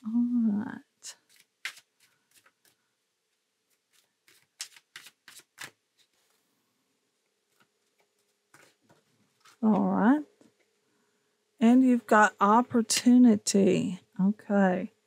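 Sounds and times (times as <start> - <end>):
cards being shuffled: 1.2 - 2.9, 3.6 - 6.4, 7.5 - 9.7.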